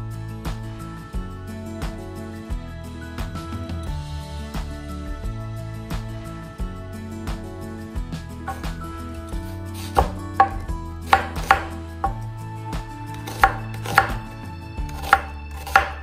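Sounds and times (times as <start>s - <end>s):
knife chopping on wooden board: 8.5s - 8.8s, 9.8s - 12.2s, 13.1s - 14.3s, 14.9s - 16.0s.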